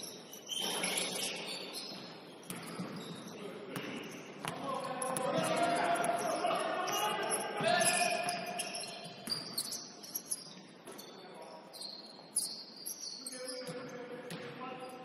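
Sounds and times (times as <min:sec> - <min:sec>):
sneaker squeaks on court: 0:00.0 - 0:15.0
players calling out: 0:04.5 - 0:09.2.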